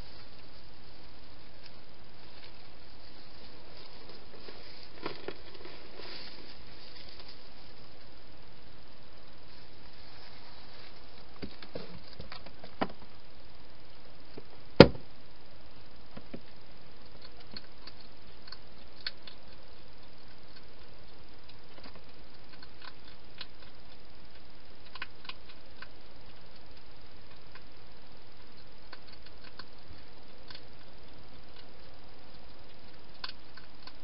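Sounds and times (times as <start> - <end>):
hedgehog eating clicks and crunches: 10.7 - 12.8, 16.4 - 34.0.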